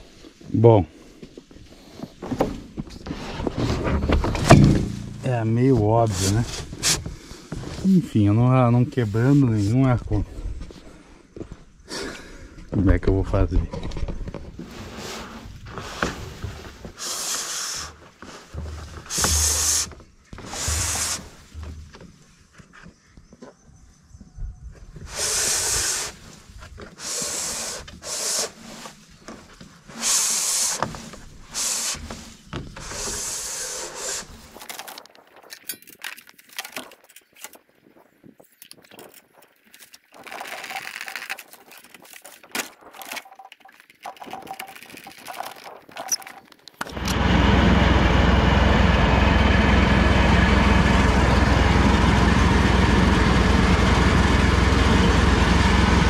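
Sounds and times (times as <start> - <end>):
handling noises: 1.2 - 10.0, 17.8 - 23.6, 27.7 - 47.2
straps scraping against pipes: 1.5 - 10.1, 13.8 - 22.9, 25.0 - 47.0
tractor engine running: 4.2 - 7.1, 18.6 - 22.0, 46.8 - 56.0.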